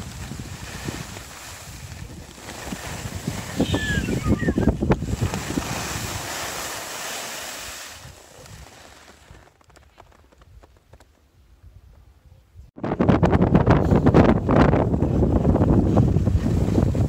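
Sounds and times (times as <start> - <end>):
wind buffeting microphone: 0.0 - 6.6, 11.6 - 17.0
skis hissing over snow: 0.0 - 9.4
high falling whistle: 3.6 - 4.8.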